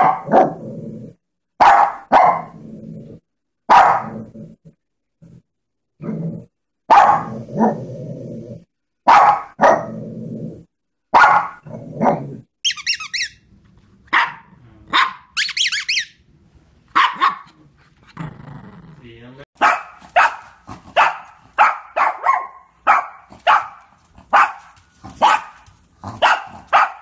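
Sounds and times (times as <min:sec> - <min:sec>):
dog barking: 0:00.0 - 0:00.6, 0:01.6 - 0:02.6, 0:03.7 - 0:04.2, 0:06.9 - 0:07.8, 0:09.0 - 0:09.9, 0:11.1 - 0:12.2, 0:14.1 - 0:15.4, 0:16.9 - 0:17.6, 0:19.6 - 0:27.0
dog squeaking: 0:12.6 - 0:13.4, 0:15.4 - 0:16.2.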